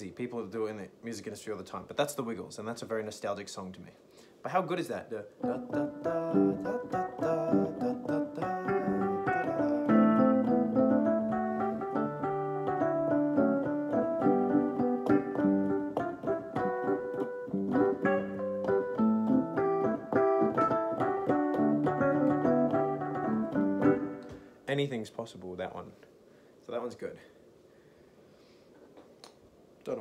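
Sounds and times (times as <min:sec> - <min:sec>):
piano chords and melody: 0:05.4 - 0:24.4.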